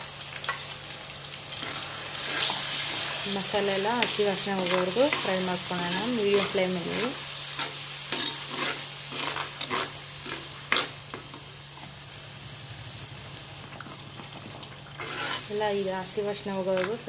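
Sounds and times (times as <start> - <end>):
oil sizzling: 0.0 - 17.0
metal ladle scraping pot: 14.9 - 15.5.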